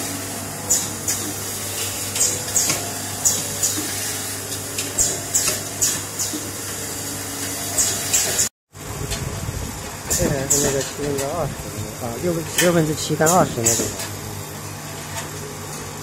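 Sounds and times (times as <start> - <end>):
machine low hum: 8.8 - 16.0
machine hissing bursts: 13.2 - 14.0.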